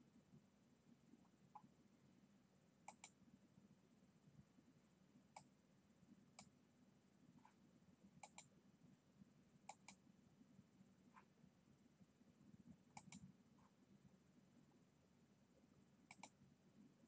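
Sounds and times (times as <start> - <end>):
computer mouse clicks: 2.9 - 3.2, 8.2 - 8.5, 9.7 - 10.0, 12.9 - 13.3, 16.1 - 16.4.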